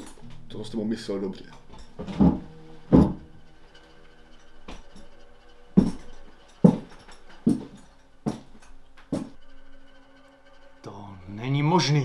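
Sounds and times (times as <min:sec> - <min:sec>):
quiet background music: 0:00.0 - 0:12.0
heavy boot footsteps: 0:01.7 - 0:03.3, 0:05.8 - 0:09.4
heavy thump: 0:02.0 - 0:03.3.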